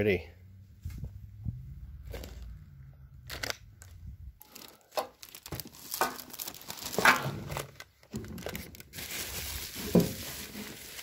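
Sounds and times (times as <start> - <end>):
plastic bags and bubble wrap crinkling: 3.3 - 11.0.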